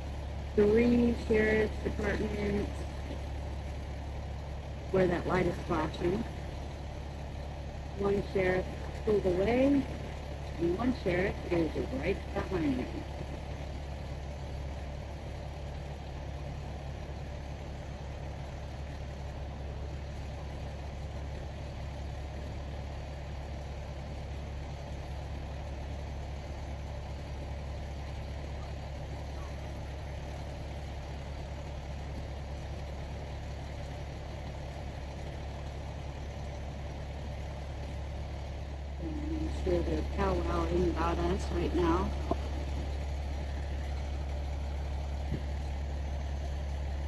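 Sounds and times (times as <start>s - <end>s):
vehicle engine idling: 0.0s - 47.0s.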